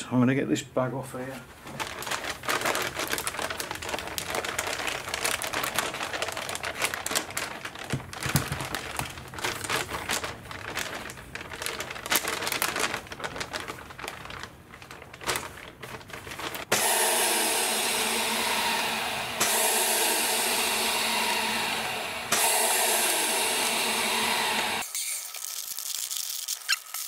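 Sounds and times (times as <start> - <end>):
plastic film crinkling: 1.5 - 16.7, 24.8 - 27.0
vacuum pump hissing: 16.7 - 24.9.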